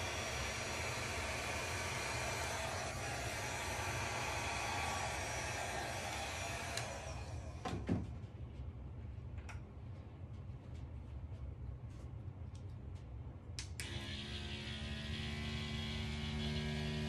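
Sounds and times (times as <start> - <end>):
hot-air blower running: 0.0 - 8.0, 13.8 - 17.0.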